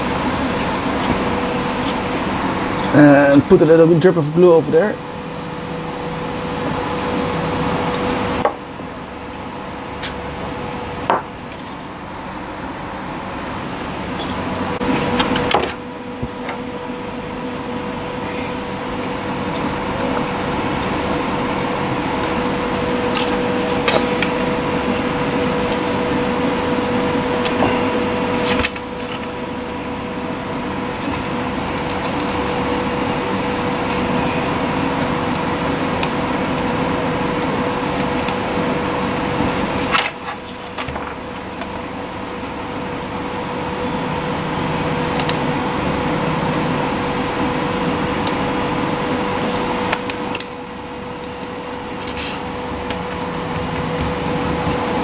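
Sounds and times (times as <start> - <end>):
steady machine hum: 0.0 - 55.0.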